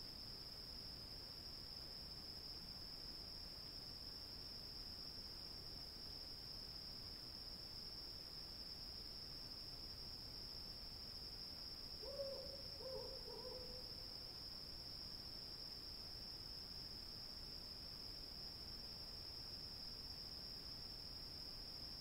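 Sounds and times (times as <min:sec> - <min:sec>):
crickets chirring: 0:11.4 - 0:15.0
owl hooting: 0:12.0 - 0:13.9.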